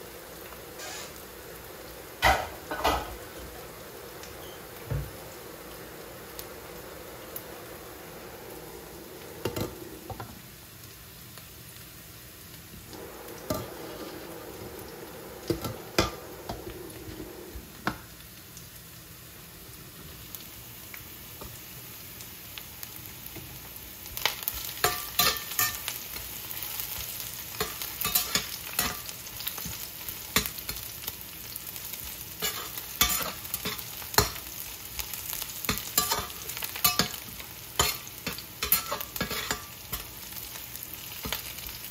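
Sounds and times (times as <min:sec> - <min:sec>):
vegetables sizzling in a frying pan: 0:00.0 - 0:41.9
metal turner clinking and scraping pan: 0:13.4 - 0:14.6, 0:15.3 - 0:17.2, 0:24.6 - 0:30.9, 0:32.4 - 0:34.5, 0:35.6 - 0:40.3.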